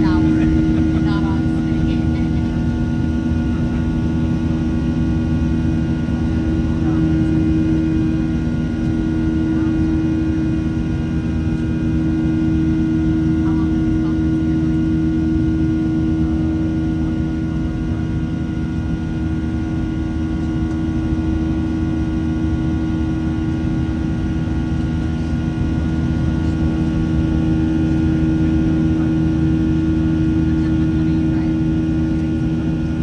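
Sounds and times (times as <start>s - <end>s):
cabin airflow rush: 0.0s - 17.7s
jet engines humming: 0.0s - 33.0s.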